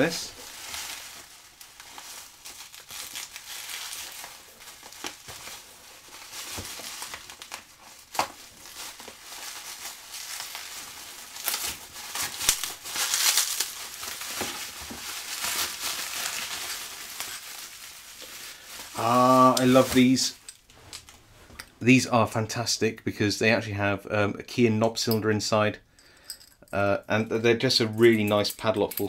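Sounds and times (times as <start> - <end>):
bubble wrap crinkling: 0.0 - 21.6.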